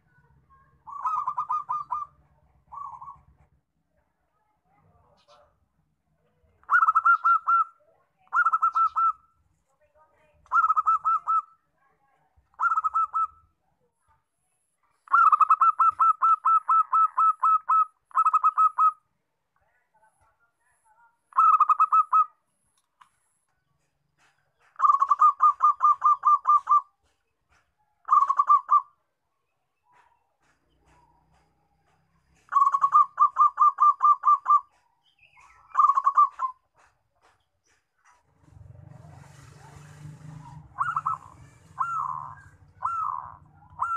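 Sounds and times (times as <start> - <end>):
dove cooing: 0.5 - 3.4, 6.6 - 9.2, 10.5 - 11.6, 12.6 - 13.5, 15.1 - 19.0, 21.3 - 22.3, 24.8 - 28.9, 32.4 - 37.0, 38.5 - 43.9.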